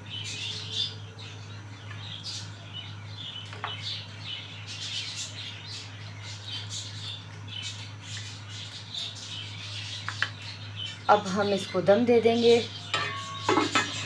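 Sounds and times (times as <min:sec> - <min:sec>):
small birds chirping: 0:00.0 - 0:14.0
steady low hum: 0:00.0 - 0:14.0.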